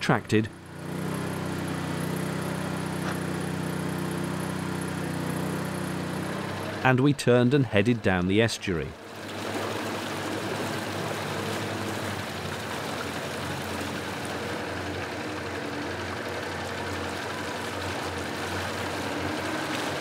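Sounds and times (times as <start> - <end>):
outboard motors running: 0.0 - 20.0
water rushing past hull: 9.0 - 20.0.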